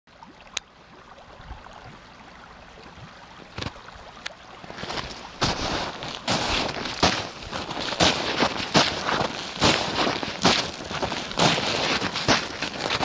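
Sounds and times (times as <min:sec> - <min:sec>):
creek water running under ice: 0:00.1 - 0:13.0.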